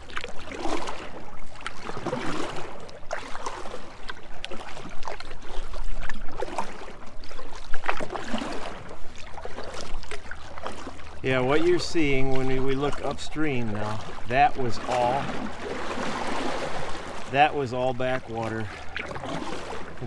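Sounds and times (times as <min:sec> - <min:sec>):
water splashing around canoe: 0:00.0 - 0:20.0.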